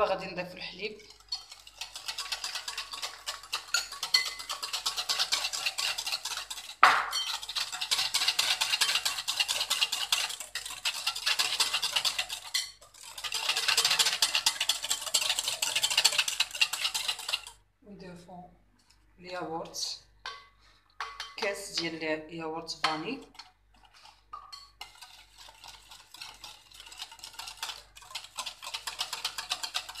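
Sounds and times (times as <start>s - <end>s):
wire whisk clinking in glass bowl: 0.9s - 17.5s, 20.2s - 21.9s, 24.3s - 30.0s
sharp knock on bowl: 6.8s - 7.1s.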